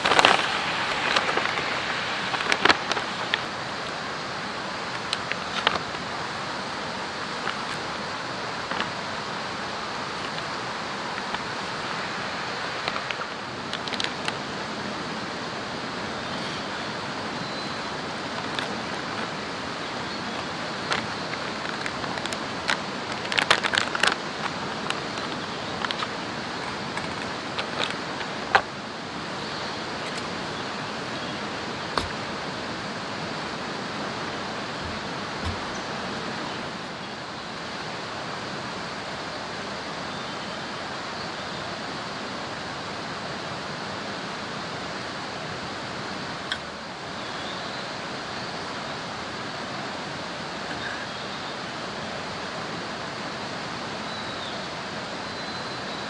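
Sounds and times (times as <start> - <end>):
rushing water: 0.0 - 56.0
plastic pouches crinkling: 20.9 - 28.6.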